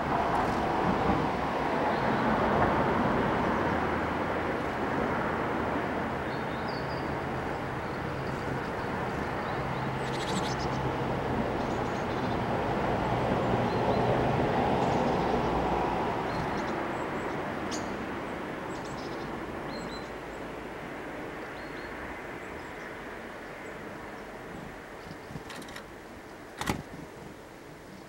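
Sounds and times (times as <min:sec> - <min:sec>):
small birds calling: 0:06.3 - 0:11.0.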